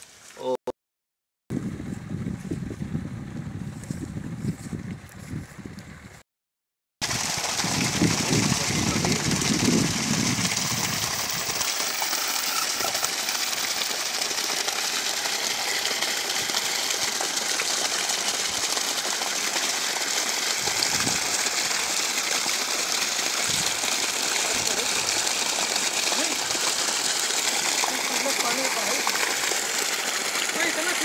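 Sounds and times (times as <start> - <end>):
water gushing and splashing: 7.0 - 31.0
water pump running: 7.0 - 31.0.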